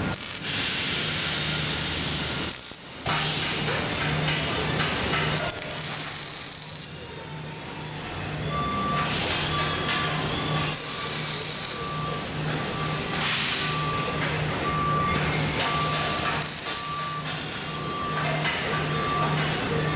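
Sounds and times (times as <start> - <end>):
welding arc crackle: 0.0 - 7.0, 9.0 - 18.2
reversing alarm beeping: 4.6 - 19.9.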